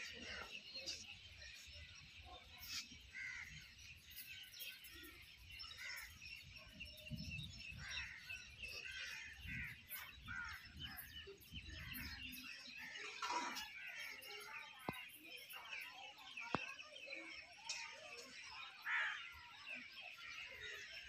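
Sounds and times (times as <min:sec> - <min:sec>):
birds chirping and calling: 0:00.0 - 0:21.0
wind rumbling on microphone: 0:06.8 - 0:08.2.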